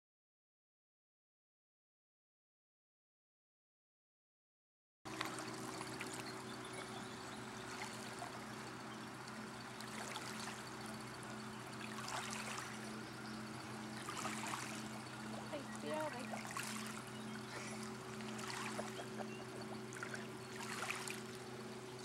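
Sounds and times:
low motor hum: 5.1s - 22.0s
water lapping against boat hull: 5.1s - 22.0s.

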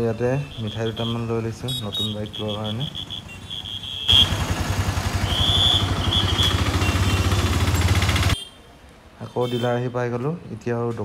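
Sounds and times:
motorcycle engine running: 4.1s - 8.4s.

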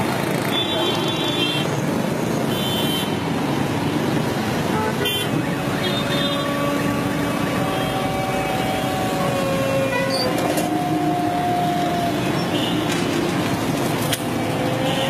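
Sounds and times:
street traffic: 0.0s - 15.0s
long steady tones: 5.2s - 12.9s.

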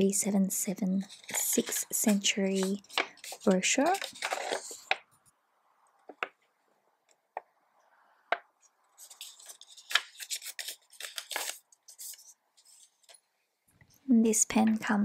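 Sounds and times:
paper rustling: 1.0s - 5.0s, 8.9s - 13.2s.

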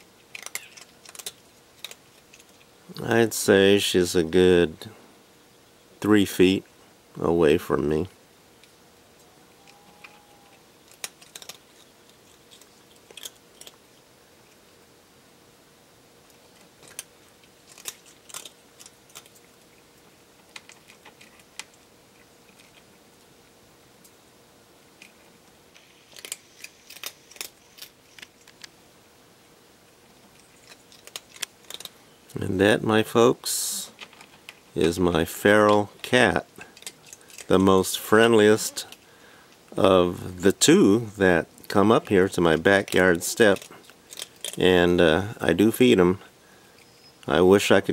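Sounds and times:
cat crunching dry kibble: 0.0s - 3.9s, 9.7s - 14.8s, 16.2s - 23.0s, 25.0s - 28.8s, 30.0s - 46.9s.

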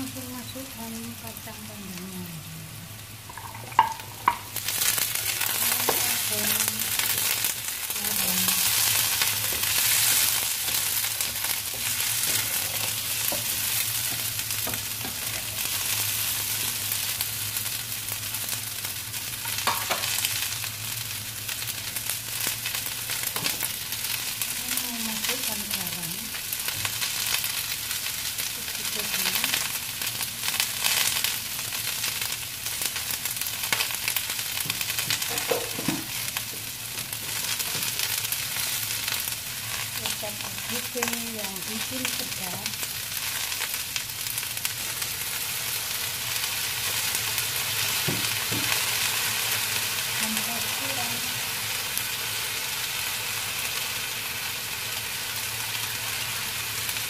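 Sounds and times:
food sizzling in a wok: 0.0s - 57.0s
spatula scraping a pan: 8.8s - 14.3s.

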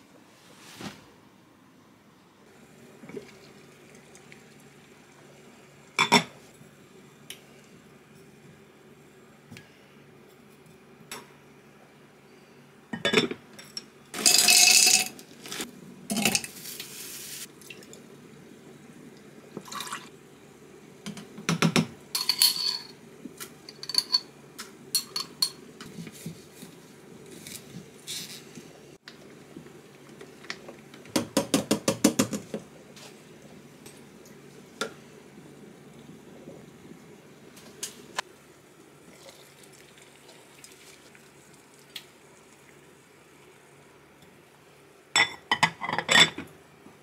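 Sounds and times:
pouring: 14.2s - 18.0s, 19.6s - 20.1s, 39.0s - 43.1s.

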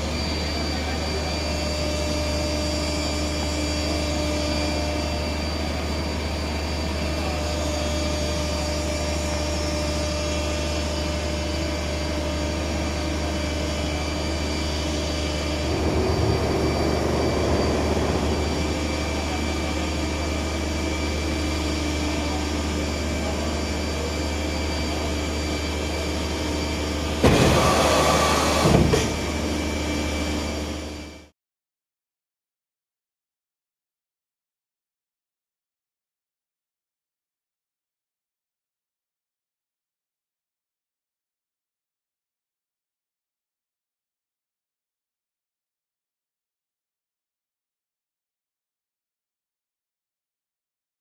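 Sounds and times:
hydraulic mechanical hum: 0.0s - 24.1s.

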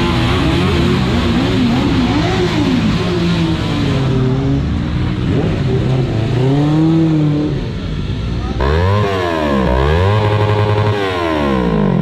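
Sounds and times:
motorcycle engine revving: 0.0s - 12.0s
motorcycle engines pulling away: 8.5s - 12.0s.

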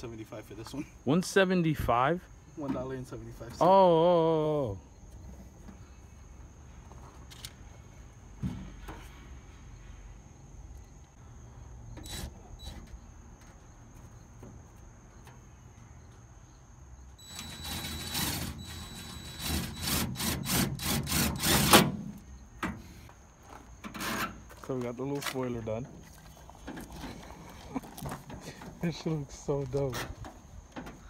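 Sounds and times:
cordless drill driving into metal: 17.2s - 22.0s.

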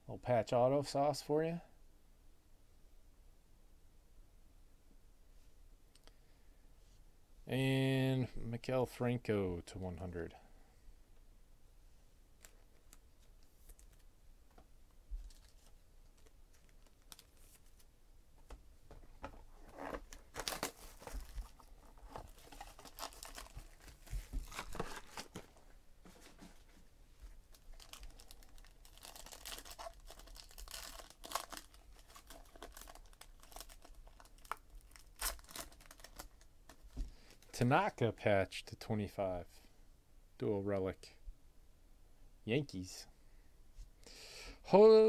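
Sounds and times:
foil wrapper crinkling and ripping: 15.2s - 17.9s, 19.7s - 25.6s, 27.5s - 37.6s.

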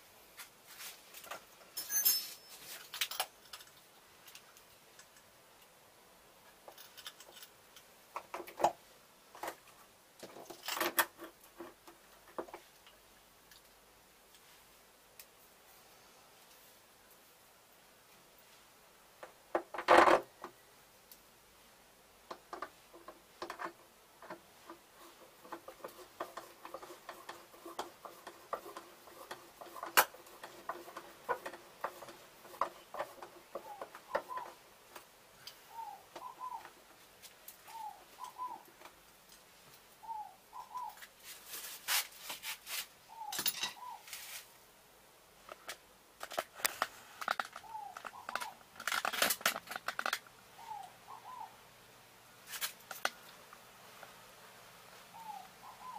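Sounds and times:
hands clicking and rustling wiring: 0.4s - 5.7s, 6.6s - 8.8s, 22.2s - 39.9s, 45.4s - 50.4s, 52.5s - 54.2s
bird chirping: 31.9s - 34.6s, 35.4s - 36.8s, 37.6s - 38.8s, 40.0s - 41.0s, 43.1s - 44.1s, 47.6s - 48.6s, 50.5s - 51.6s, 55.1s - 55.9s.

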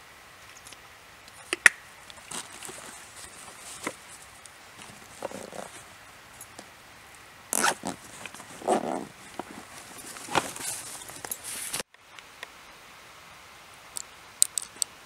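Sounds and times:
zipper being pulled: 2.2s - 5.9s, 7.5s - 11.8s
fabric rustling and scraping: 2.2s - 6.6s, 7.5s - 11.9s.

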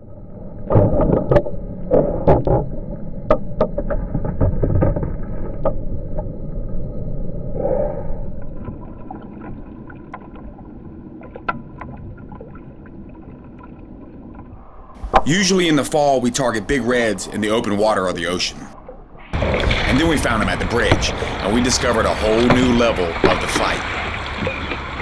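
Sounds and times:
water splashing against kayak: 8.5s - 25.0s.

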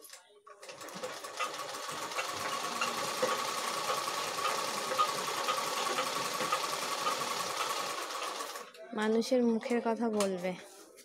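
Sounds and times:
sewing machine running: 0.6s - 8.8s.

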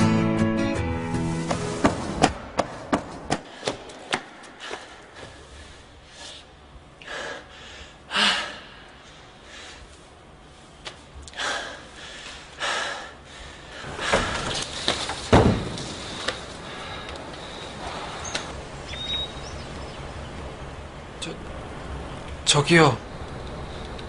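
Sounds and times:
man gasping breaths: 4.5s - 9.9s, 11.3s - 15.0s, 16.0s - 18.4s.

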